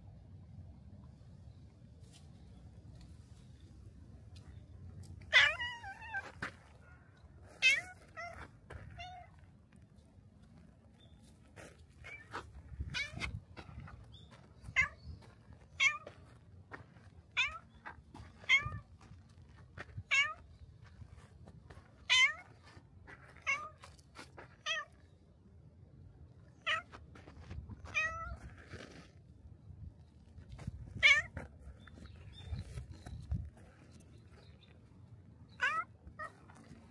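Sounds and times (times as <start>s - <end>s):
cat meowing: 5.3s - 6.3s, 7.6s - 9.4s, 17.4s - 17.7s, 18.4s - 18.9s, 20.0s - 20.4s, 22.1s - 22.4s, 23.4s - 23.8s, 26.6s - 26.9s, 27.9s - 28.4s, 31.0s - 31.4s, 35.6s - 36.5s.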